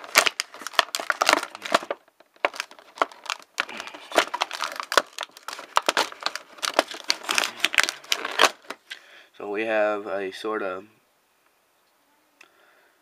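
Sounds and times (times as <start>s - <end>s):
plastic packaging crinkling: 0.0s - 9.0s.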